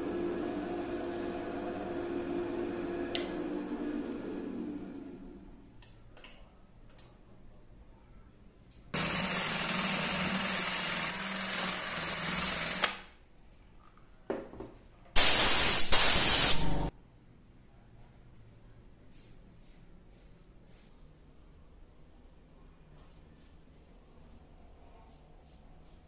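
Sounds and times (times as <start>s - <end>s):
power drill boring into wood: 9.0s - 13.0s.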